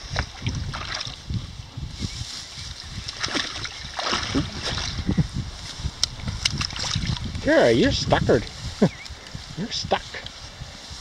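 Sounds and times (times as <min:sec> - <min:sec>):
water sloshing and splashing: 0:00.0 - 0:01.3, 0:02.7 - 0:07.4.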